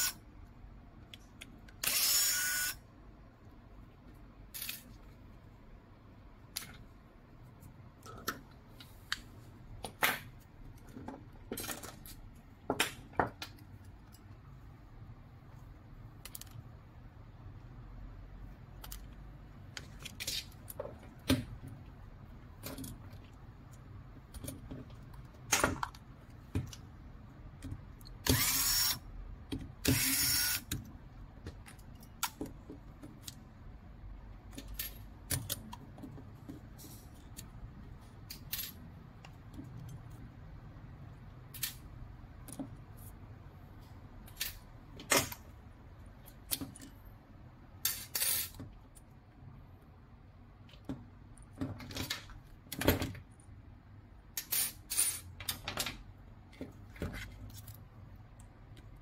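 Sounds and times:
plastic parts clicking and knocking: 9.8s - 14.4s, 16.2s - 16.7s, 18.7s - 28.8s, 29.4s - 33.8s, 34.4s - 37.6s, 46.2s - 47.0s, 54.4s - 59.0s.

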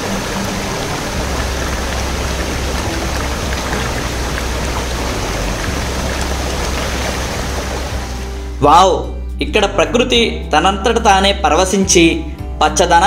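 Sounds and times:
stream water flowing and gurgling: 0.0s - 8.6s.

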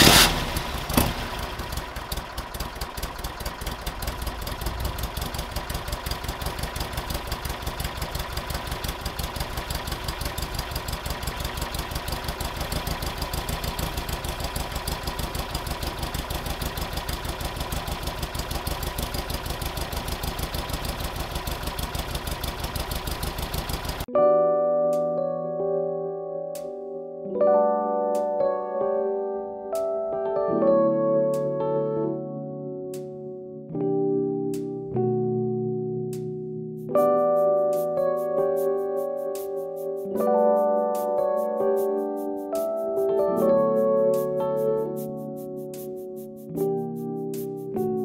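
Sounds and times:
car engine idling: 0.0s - 24.1s.

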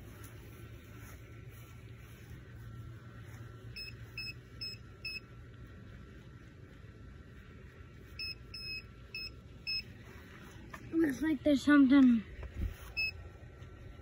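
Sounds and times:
metal detector beeping: 3.7s - 5.3s, 8.2s - 10.0s, 12.8s - 13.2s.

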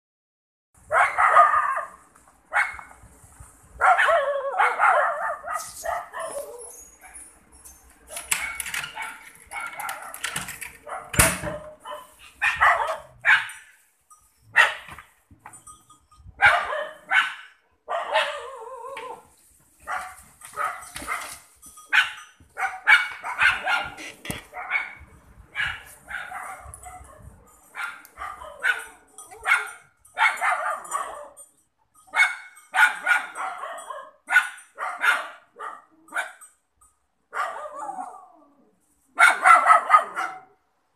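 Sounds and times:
dog barking: 0.9s - 2.9s, 3.8s - 7.2s, 8.1s - 10.2s, 10.8s - 13.6s, 14.6s - 14.9s, 16.4s - 18.6s, 19.8s - 31.4s, 32.1s - 36.4s, 37.3s - 38.2s, 39.2s - 40.6s.

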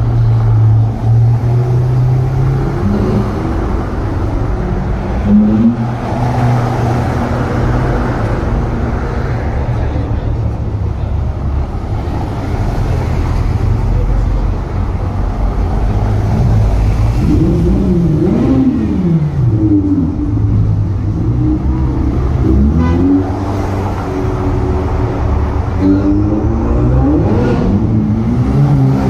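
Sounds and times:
sports car engines rumbling: 0.0s - 29.0s
engine revving: 16.2s - 29.0s.

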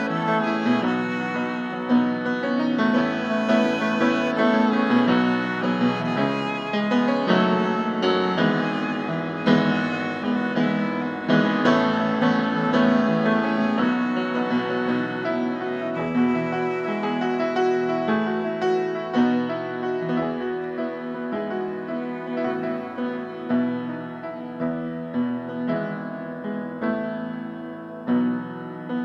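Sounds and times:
grand piano: 0.0s - 29.0s
violin melody: 0.0s - 29.0s.

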